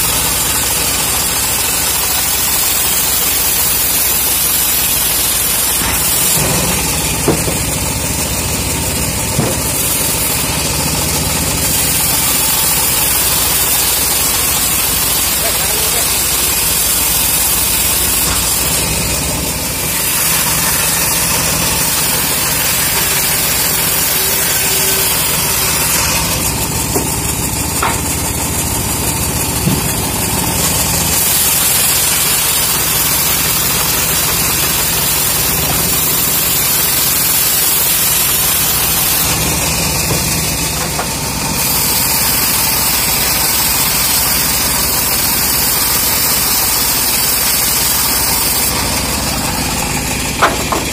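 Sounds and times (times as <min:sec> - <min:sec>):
bandsaw blade ripping through wood: 0:17.7 - 0:27.2.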